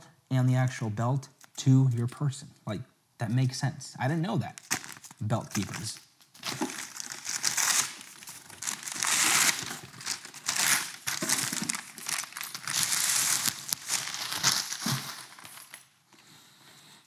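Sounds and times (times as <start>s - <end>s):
packing paper crinkling: 4.5s - 16.0s.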